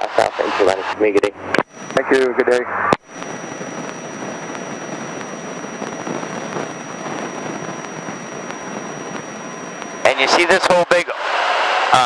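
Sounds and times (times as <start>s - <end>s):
faint high whine: 0.0s - 12.0s.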